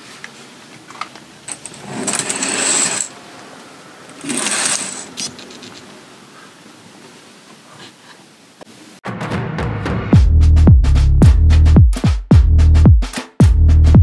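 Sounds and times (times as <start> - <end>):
curtain sliding along track: 1.5 - 6.0.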